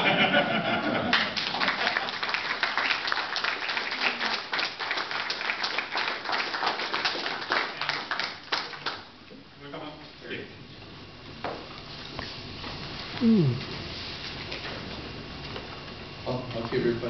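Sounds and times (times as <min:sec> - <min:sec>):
audience applauding: 0:01.0 - 0:09.1.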